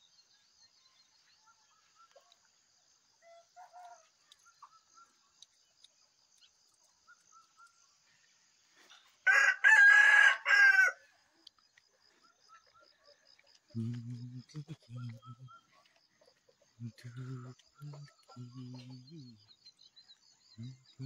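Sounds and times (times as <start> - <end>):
small birds chirping: 0.0 - 9.4, 11.1 - 21.0
insect trill: 0.0 - 21.0
rooster crowing: 9.2 - 11.2.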